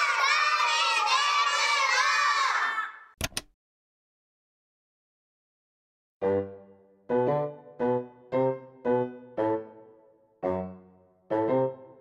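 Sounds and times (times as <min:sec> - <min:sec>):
children shouting together: 0:00.0 - 0:03.1.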